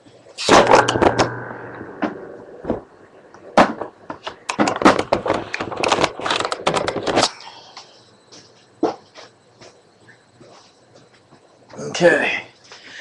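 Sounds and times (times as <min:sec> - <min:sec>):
loud knock: 0:00.5 - 0:02.9.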